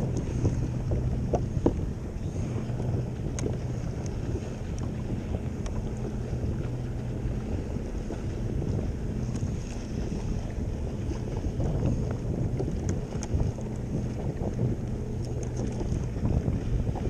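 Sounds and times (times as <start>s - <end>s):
steady low hum: 0.0s - 17.0s
wind buffeting microphone: 0.0s - 17.0s
faint clicks: 3.3s - 4.9s.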